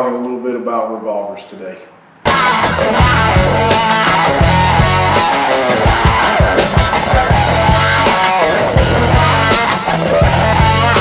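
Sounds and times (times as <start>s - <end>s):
bass guitar: 2.2s - 11.0s
rock guitar: 2.2s - 11.0s
steady drum beat: 2.3s - 11.0s.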